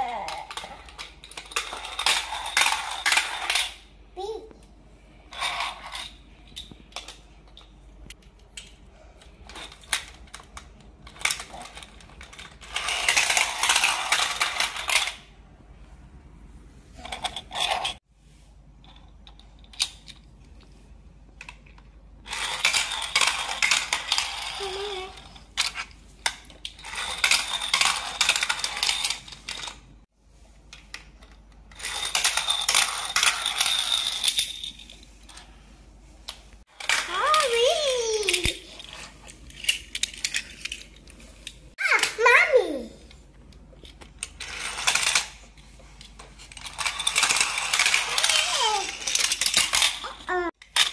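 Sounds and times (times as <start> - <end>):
plastic toy cars rattling down ramp: 0.0 - 3.8, 9.4 - 15.3, 21.4 - 29.8, 30.8 - 34.7, 43.8 - 50.9
toy cars clicking set down: 46.1 - 50.9.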